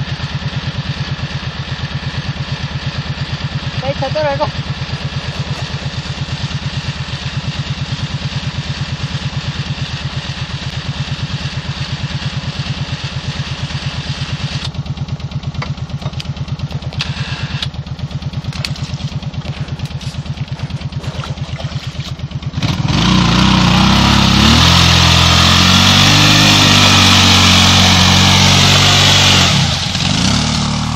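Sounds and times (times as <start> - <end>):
atv engine idling and revving: 0.0 - 30.9
knocks and clatters: 18.4 - 22.2.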